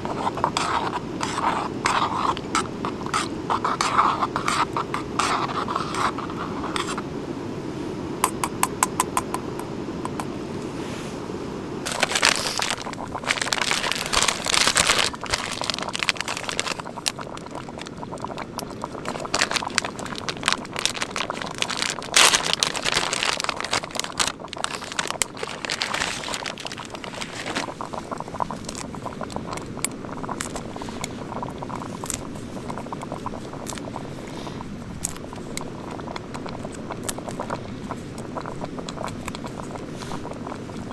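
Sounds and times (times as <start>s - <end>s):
rustling on dry leaves: 11.9s - 17.3s, 19.0s - 28.0s.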